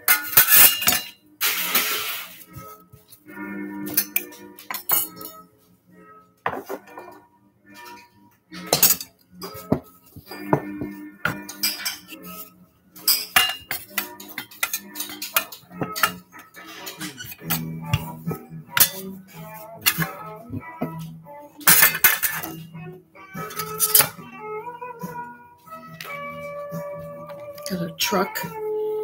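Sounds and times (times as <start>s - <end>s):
metal utensils clattering: 0.0s - 2.4s, 3.8s - 5.4s, 7.8s - 12.2s, 13.0s - 19.1s, 19.8s - 20.2s, 21.6s - 22.6s, 23.4s - 24.2s
music playing: 0.0s - 29.0s.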